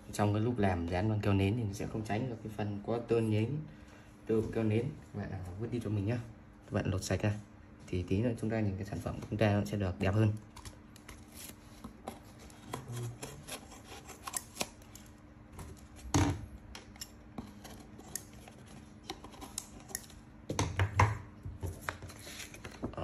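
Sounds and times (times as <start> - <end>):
paper handling rustle: 21.6 - 23.0.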